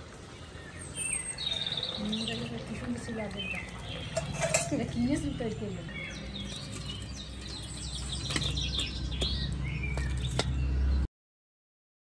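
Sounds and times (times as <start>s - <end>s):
small birds chirping: 0.0s - 11.1s
metal clinks on a steel bowl: 4.0s - 5.4s.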